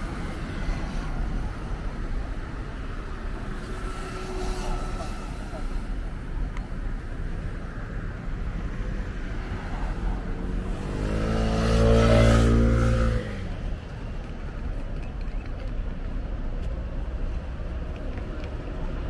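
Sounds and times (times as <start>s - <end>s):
steady traffic noise: 0.0s - 19.0s
vehicle engine passing: 9.9s - 13.8s.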